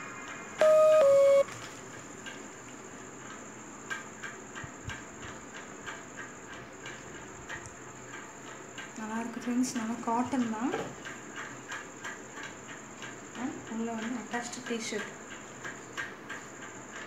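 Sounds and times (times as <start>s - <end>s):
two-note electronic tone: 0.6s - 1.5s.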